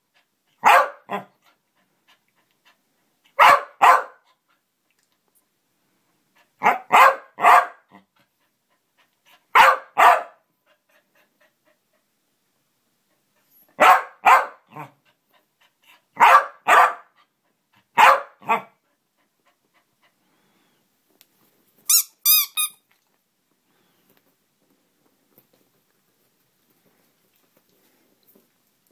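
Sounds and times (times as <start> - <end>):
dog barking: 0.6 - 1.4, 3.4 - 4.3, 6.6 - 8.0, 9.5 - 10.4, 13.8 - 15.0, 16.2 - 17.2, 18.0 - 18.8.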